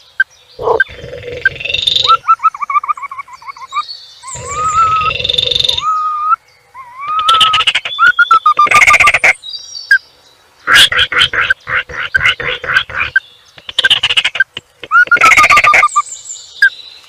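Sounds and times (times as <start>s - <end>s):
rattling frog-like calls: 0.6s - 6.0s, 7.0s - 9.4s, 10.7s - 16.0s.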